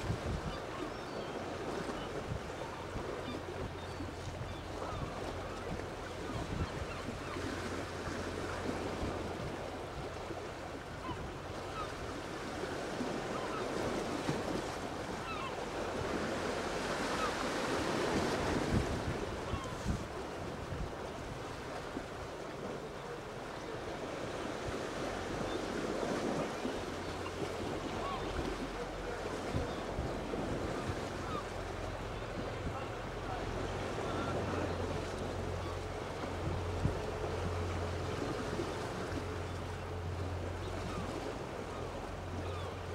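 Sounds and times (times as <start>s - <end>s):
wind gusts on microphone: 0.0s - 0.7s, 16.0s - 21.9s.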